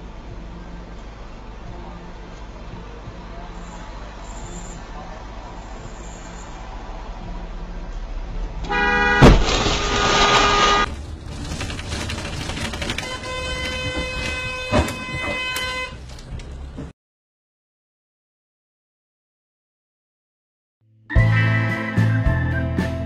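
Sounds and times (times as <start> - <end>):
traffic hum: 0.0 - 16.9.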